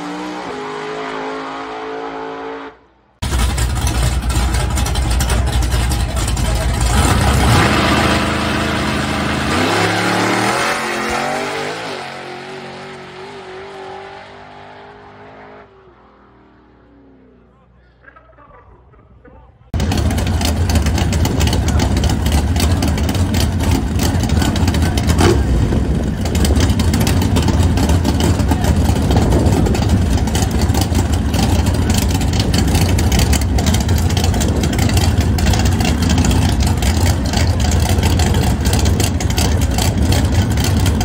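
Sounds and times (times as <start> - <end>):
race engines idling loudly: 3.2 - 9.6, 17.4 - 41.0.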